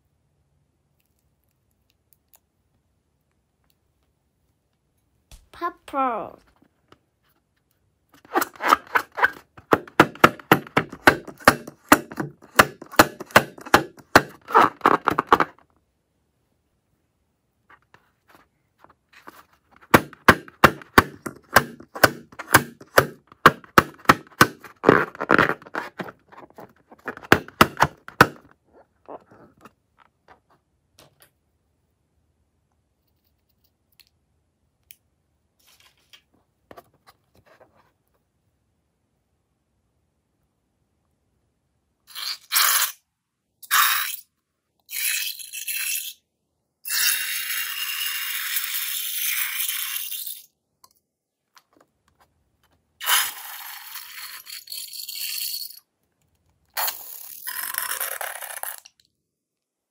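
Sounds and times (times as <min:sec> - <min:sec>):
fingernails tapping on balloon: 0:08.7 - 0:15.6, 0:19.8 - 0:28.5
rubbing on balloon: 0:13.2 - 0:15.4, 0:19.2 - 0:28.4.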